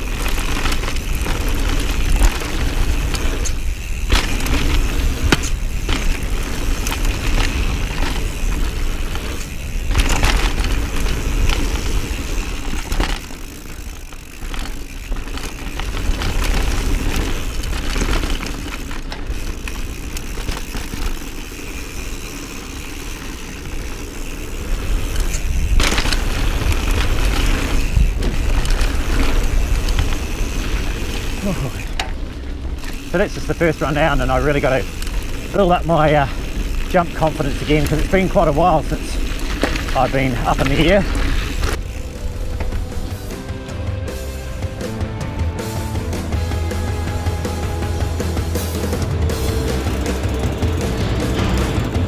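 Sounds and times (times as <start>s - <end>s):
bike rattling: 0.0s - 52.0s
tyres on dirt: 0.0s - 52.0s
wind rumbling on microphone: 23.3s - 33.2s.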